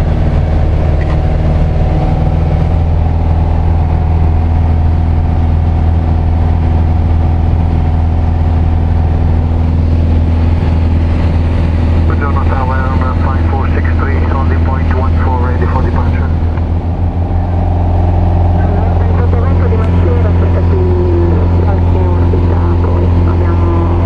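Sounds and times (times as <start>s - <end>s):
airplane engine and propeller droning: 0.0s - 24.0s.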